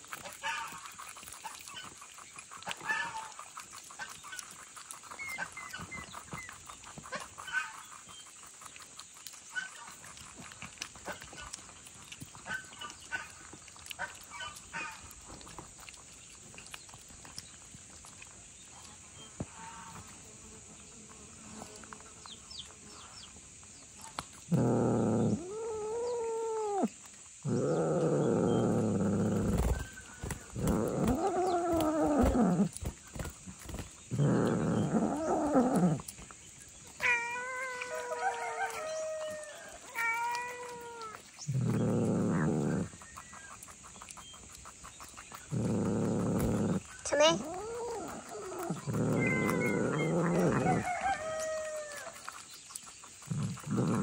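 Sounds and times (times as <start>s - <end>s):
cat meowing: 37.0s - 38.1s, 39.9s - 41.1s, 49.1s - 50.7s.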